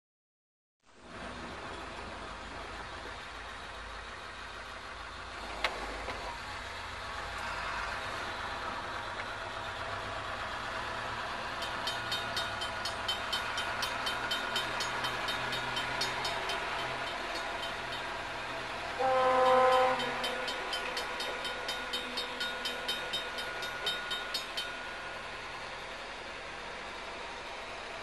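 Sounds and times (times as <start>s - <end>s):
train rumble: 1.0s - 28.0s
crossing bell ringing: 10.2s - 26.7s.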